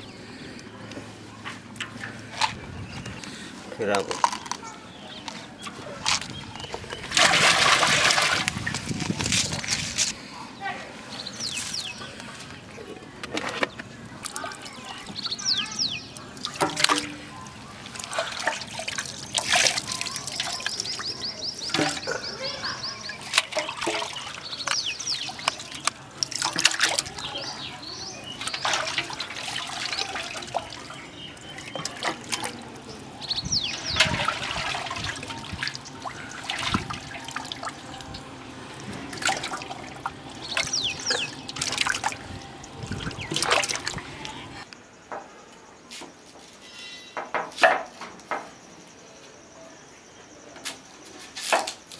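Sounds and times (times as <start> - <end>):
water sloshing in a pot: 5.7 - 9.2, 12.9 - 44.6.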